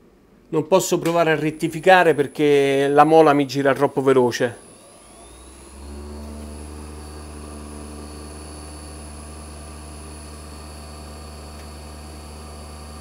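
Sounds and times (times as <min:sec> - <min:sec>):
grinding wheel motor humming and whining: 0:04.6 - 0:13.0.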